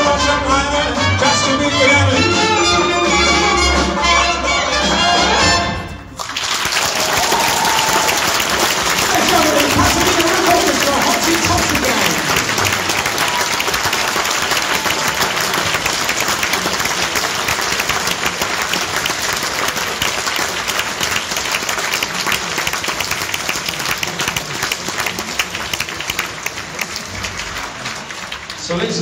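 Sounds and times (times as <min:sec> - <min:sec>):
audience applauding: 0:06.1 - 0:29.0.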